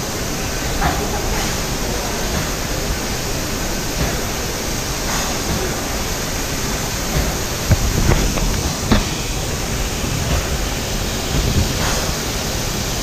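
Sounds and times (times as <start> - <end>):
spray booth airflow: 0.0 - 13.0
spray gun hissing: 0.0 - 13.0.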